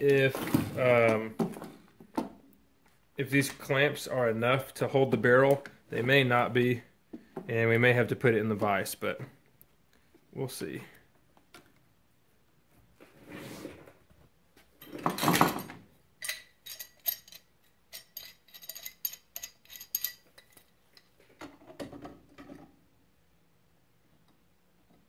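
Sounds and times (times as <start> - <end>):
metal clinks and clicks: 16.2 - 21.2.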